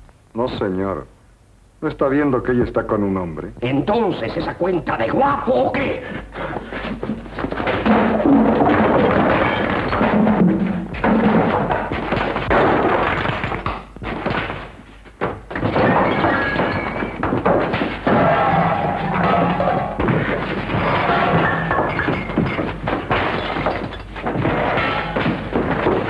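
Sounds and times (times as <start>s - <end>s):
scuffle thumps and thuds: 6.4s - 26.0s.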